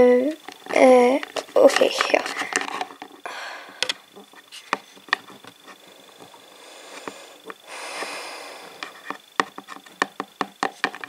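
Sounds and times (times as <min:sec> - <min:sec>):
breathy sniff: 0:05.8 - 0:09.0.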